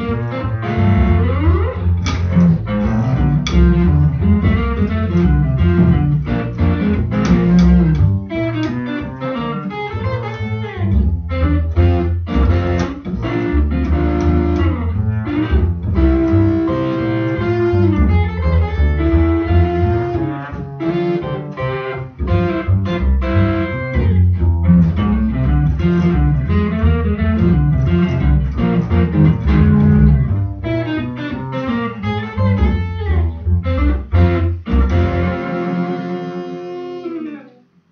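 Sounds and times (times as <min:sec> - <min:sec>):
plucked double bass: 0:00.0 - 0:37.4
electric guitar single-note runs: 0:33.8 - 0:37.5.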